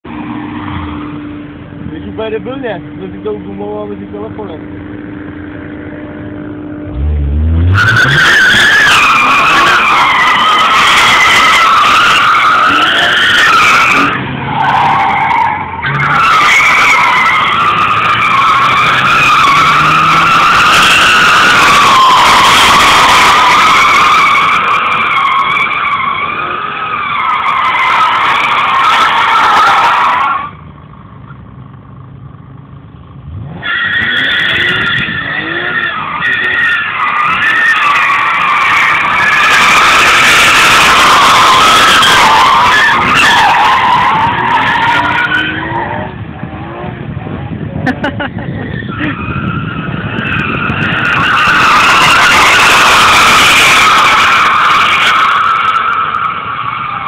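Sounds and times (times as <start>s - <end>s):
tyres squealing: 7.4s - 30.5s, 48.7s - 57.0s.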